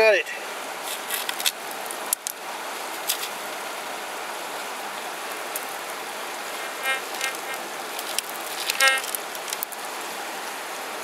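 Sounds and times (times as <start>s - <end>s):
river water rushing: 0.3s - 11.0s
gravel clicking in plastic scoop: 8.0s - 9.7s.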